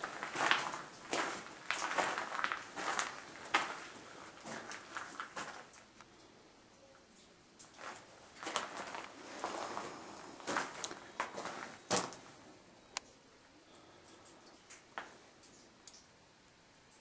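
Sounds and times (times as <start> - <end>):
footsteps in a mine tunnel: 0.0 - 6.3, 7.6 - 12.6.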